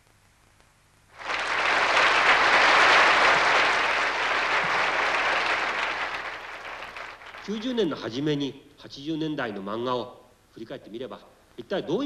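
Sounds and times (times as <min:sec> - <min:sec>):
audience applause: 0:01.2 - 0:08.0.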